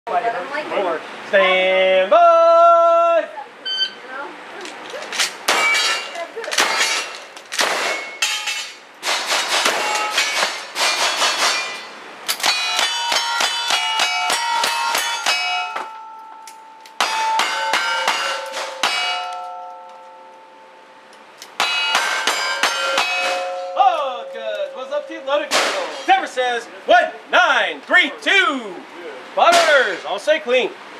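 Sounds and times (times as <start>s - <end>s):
metallic clang of steel targets: 5.1s - 20.6s, 21.4s - 26.5s, 29.5s - 30.2s.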